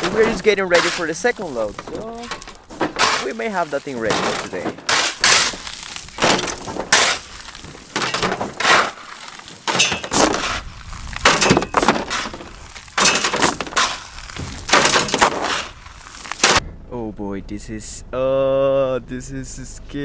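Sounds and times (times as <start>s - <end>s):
gravel clattering into truck bed: 0.0s - 16.6s.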